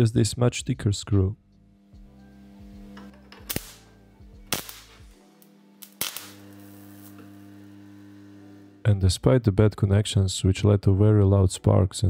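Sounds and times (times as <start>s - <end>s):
transformers humming: 1.8s - 9.2s
electrical arcing cracks: 3.4s - 8.8s.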